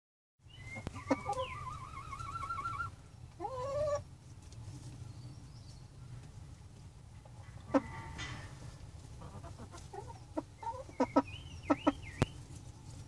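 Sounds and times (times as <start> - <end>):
low steady hum: 0.4 - 13.0
hens calling: 0.6 - 4.2, 7.2 - 12.8.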